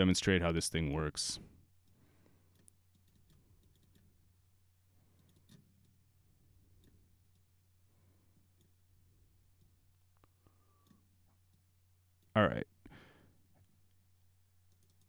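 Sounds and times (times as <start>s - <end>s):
computer mouse clicks: 1.8s - 4.2s, 5.1s - 6.0s, 14.7s - 15.0s.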